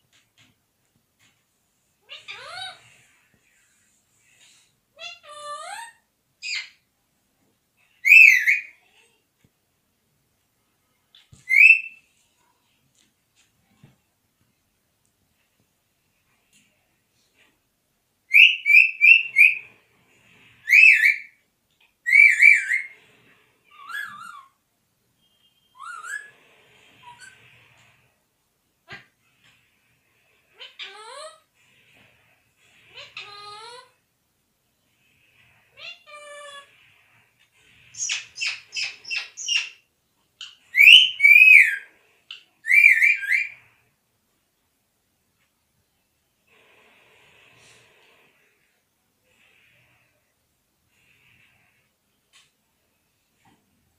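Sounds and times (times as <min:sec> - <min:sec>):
parakeet whistling: 0:11.4 - 0:12.0, 0:18.3 - 0:19.6, 0:38.0 - 0:39.8, 0:40.4 - 0:41.8, 0:42.6 - 0:43.6.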